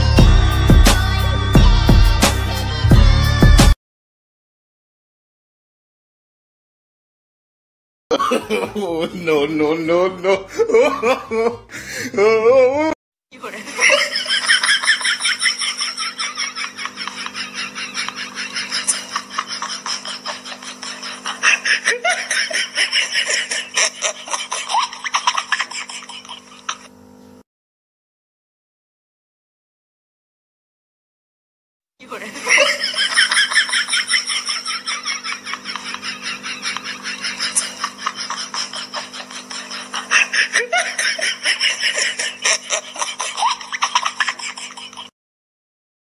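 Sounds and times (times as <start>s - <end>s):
laughter in bursts: 8.1s - 26.9s, 32.0s - 45.1s.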